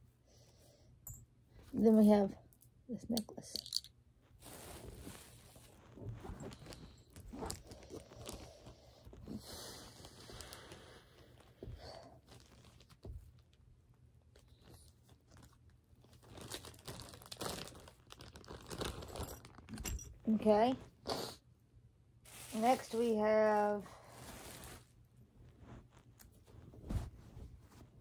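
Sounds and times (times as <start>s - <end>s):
plastic bag crinkling: 14.7s - 19.8s.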